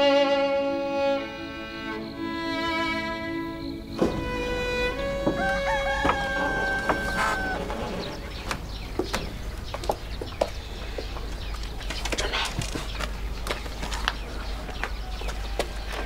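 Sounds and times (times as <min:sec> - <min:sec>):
rooster crowing: 0:00.9 - 0:08.8.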